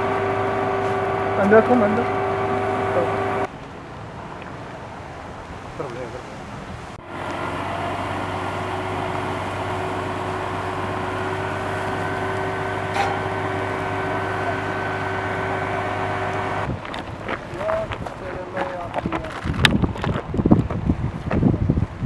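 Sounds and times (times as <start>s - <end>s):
engine hum: 0.0s - 5.4s, 6.8s - 21.0s
fire hose spraying water: 7.5s - 16.7s.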